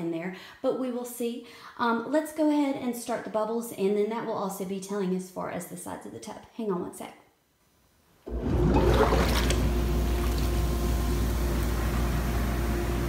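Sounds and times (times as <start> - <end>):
bathtub pump humming: 8.3 - 13.0
water jets churning bathwater: 8.3 - 13.0.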